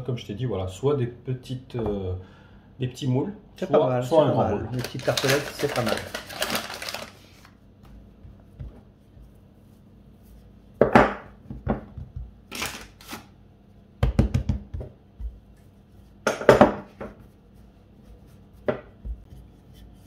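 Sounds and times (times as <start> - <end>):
rolling pin rolling dough: 7.8 - 12.4, 14.1 - 20.0
rolling pin knocking on counter: 10.8 - 12.4, 14.0 - 15.4, 16.2 - 17.2, 18.6 - 19.2.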